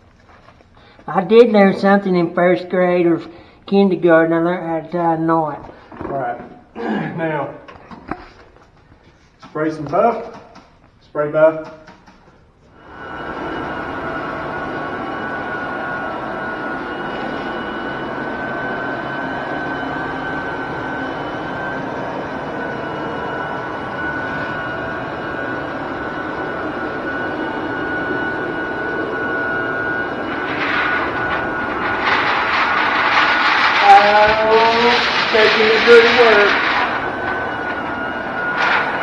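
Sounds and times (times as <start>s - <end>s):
floor burnisher motor whining: 11.5s - 39.0s
sharp bursts: 30.2s - 39.0s.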